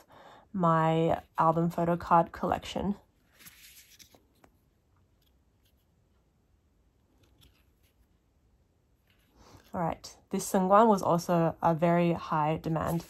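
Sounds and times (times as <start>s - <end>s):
photocards rustling: 3.2s - 4.6s, 12.7s - 13.0s.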